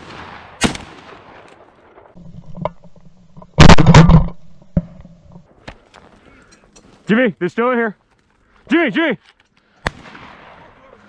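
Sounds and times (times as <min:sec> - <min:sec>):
shotgun shots: 0:00.0 - 0:01.5, 0:09.8 - 0:10.7.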